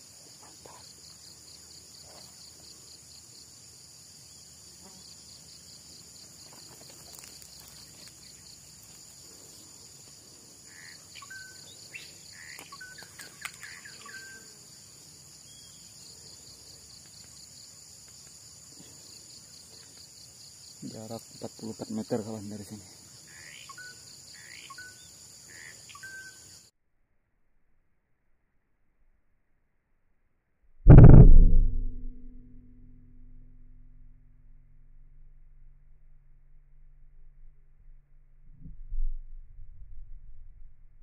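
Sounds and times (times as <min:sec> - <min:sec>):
insect chorus with pulsing buzz: 0:00.0 - 0:26.7.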